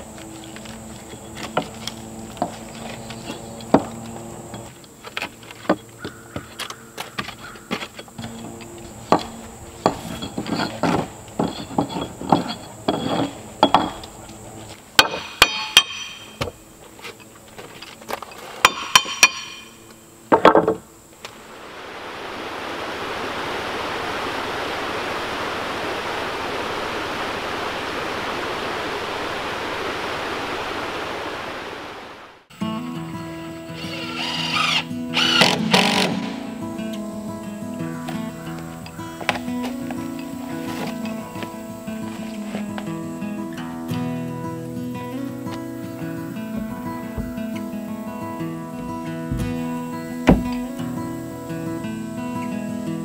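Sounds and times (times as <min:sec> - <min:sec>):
stream running over rocks: 0:00.0 - 0:17.2, 0:21.2 - 0:32.5, 0:37.9 - 0:53.0
tool scraping a log: 0:00.6 - 0:19.7
sharp metallic clinks: 0:15.0 - 0:16.5, 0:18.3 - 0:20.0
thump: 0:49.3 - 0:49.6, 0:50.3 - 0:50.6.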